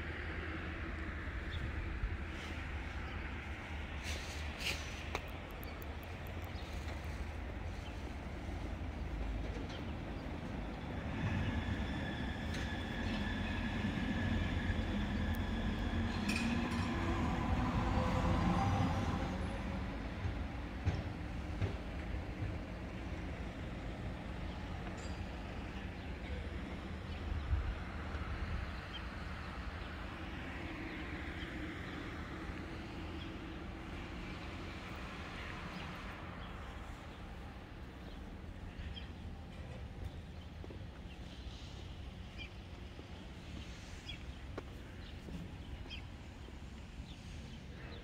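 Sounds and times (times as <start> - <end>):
low rumble of vehicle noise: 0.0 - 11.0.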